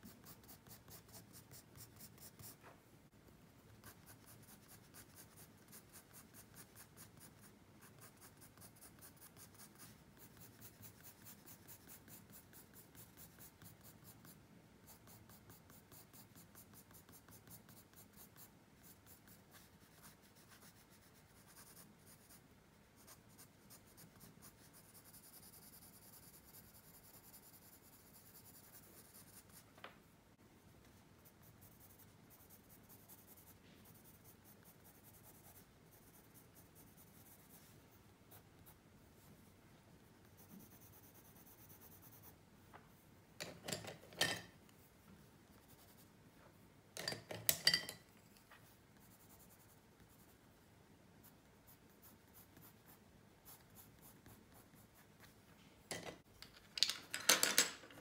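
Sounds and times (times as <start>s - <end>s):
pencil scratching on paper: 0.0s - 2.7s, 3.7s - 29.7s, 31.2s - 39.3s, 40.3s - 42.4s, 48.4s - 50.4s, 51.2s - 55.4s.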